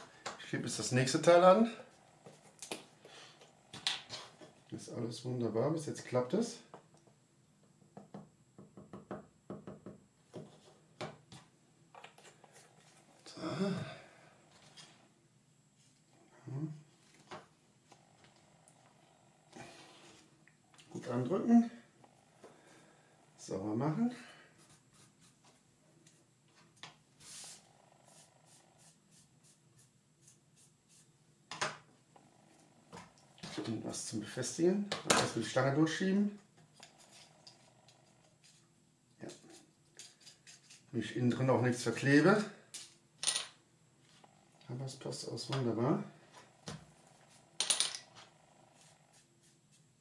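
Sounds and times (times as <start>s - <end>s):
cloth rubbing on wood: 27.2s - 31.2s.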